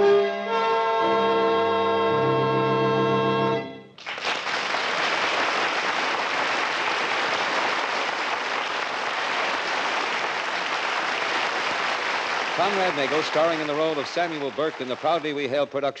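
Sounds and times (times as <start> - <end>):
brassy music sting: 0.5 - 3.8
audience applauding: 4.0 - 16.0.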